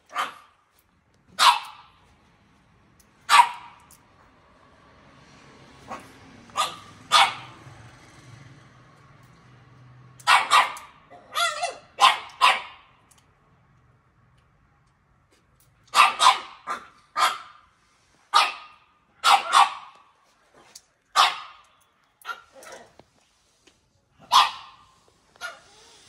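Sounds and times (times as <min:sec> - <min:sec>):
dog barking: 0:00.0 - 0:00.6, 0:01.4 - 0:02.0, 0:03.3 - 0:03.9, 0:05.8 - 0:07.7, 0:10.2 - 0:12.9, 0:15.9 - 0:17.7, 0:18.3 - 0:20.1, 0:21.2 - 0:22.9, 0:24.2 - 0:25.9.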